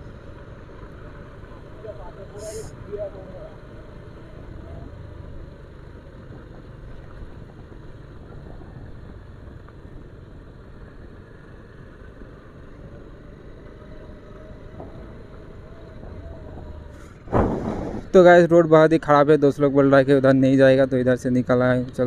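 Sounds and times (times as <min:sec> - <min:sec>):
motorcycle engine running: 0:00.0 - 0:18.2
tyre noise on broken road: 0:00.0 - 0:19.2
wind noise: 0:16.0 - 0:18.2.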